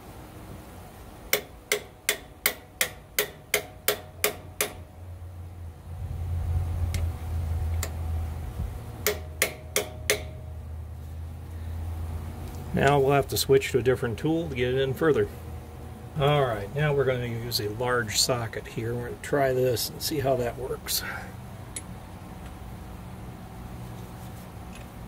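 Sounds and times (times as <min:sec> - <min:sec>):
low steady hum: 0:00.0 - 0:25.0
hammer striking metal tool: 0:01.3 - 0:04.9, 0:09.0 - 0:10.4.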